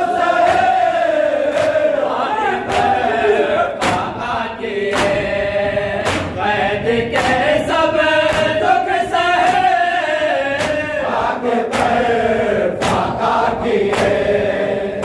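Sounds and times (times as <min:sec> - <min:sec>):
men chanting a lament: 0:00.0 - 0:15.0
hand slaps on chest: 0:00.4 - 0:00.8, 0:01.5 - 0:01.8, 0:02.7 - 0:03.0, 0:03.8 - 0:04.1, 0:04.9 - 0:05.2, 0:06.0 - 0:06.4, 0:10.6 - 0:10.8, 0:11.7 - 0:12.0, 0:12.8 - 0:13.2, 0:13.9 - 0:14.2.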